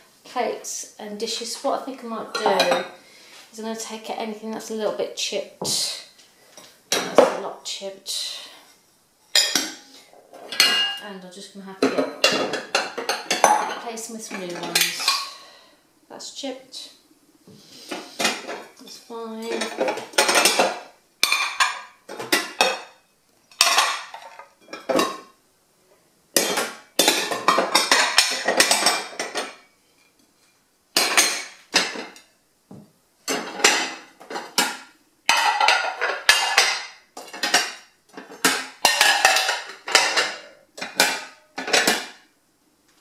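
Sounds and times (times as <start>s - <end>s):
ceramic plates clattering: 2.3s - 3.0s, 9.3s - 11.0s, 11.8s - 15.4s, 17.9s - 23.0s, 23.6s - 25.4s, 26.4s - 29.7s, 31.0s - 32.2s, 33.3s - 42.2s.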